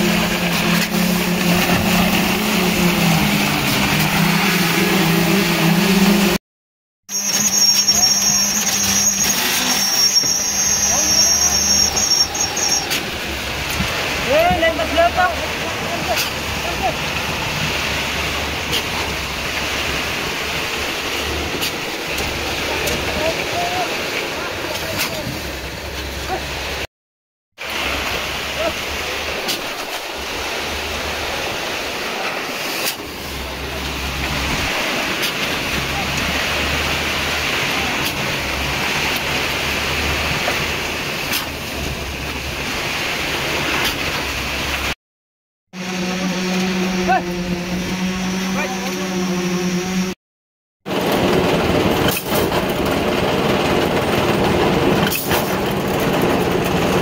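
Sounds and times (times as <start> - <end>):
concrete pump hose rushing: 0.0 - 6.4, 7.1 - 26.9, 27.6 - 45.0, 50.9 - 57.0
concrete pump running: 0.0 - 6.4, 50.9 - 57.0.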